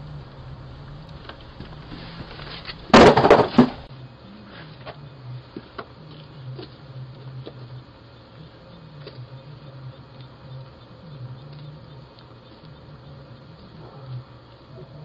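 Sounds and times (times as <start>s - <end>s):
cardboard box dropped on doorstep: 2.4s - 3.9s.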